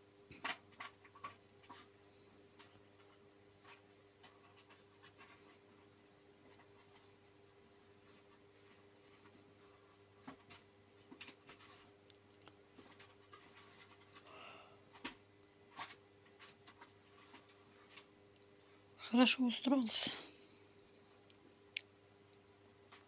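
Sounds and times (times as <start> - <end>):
kitten rustling in plastic tray: 2.6 - 12.0, 12.7 - 18.2.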